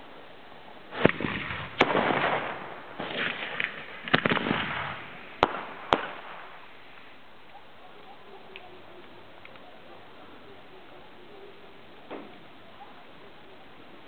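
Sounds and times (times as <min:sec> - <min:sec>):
firework bangs: 0:00.9 - 0:07.2
firework launch hiss: 0:00.9 - 0:07.2.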